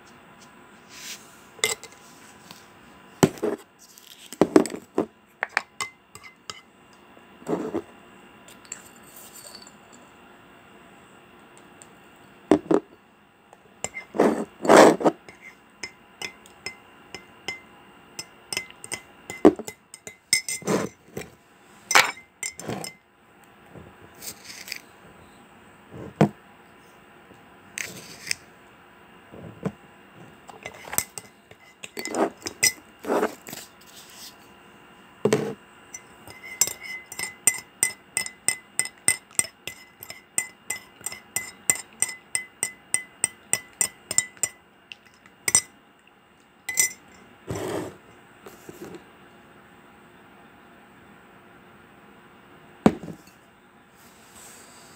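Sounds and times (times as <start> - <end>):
spoon stirring in a mug: 1.6 - 2.0, 3.3 - 6.7, 7.5 - 7.9, 8.5 - 9.9, 13.8 - 21.3, 21.9 - 23.0, 24.2 - 24.8, 30.5 - 34.5, 35.3 - 45.7, 46.7 - 48.0
spoon clinking against glass jar: 8.6 - 10.0, 13.9 - 21.0, 21.9 - 23.0, 30.6 - 32.8, 36.0 - 44.6, 45.5 - 45.7, 46.7 - 47.2.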